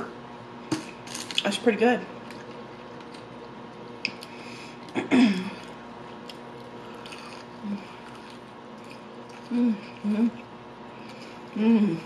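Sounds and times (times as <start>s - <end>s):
onion ring crunching and chewing: 5.5s - 11.6s.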